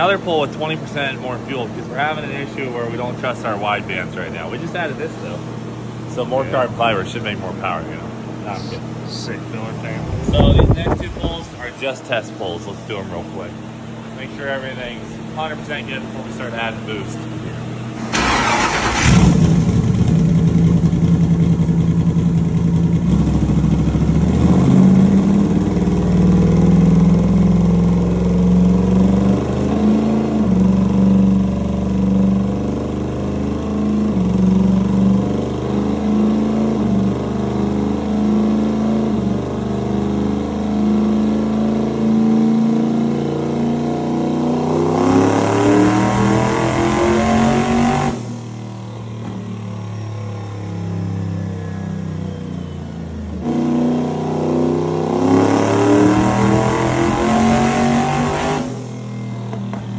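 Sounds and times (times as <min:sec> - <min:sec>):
car engine revving on a dyno: 0:13.0 - 0:59.8.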